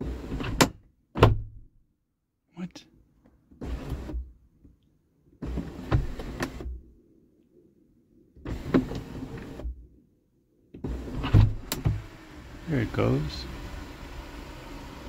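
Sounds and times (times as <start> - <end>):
sunroof motor running: 10.9 - 15.0.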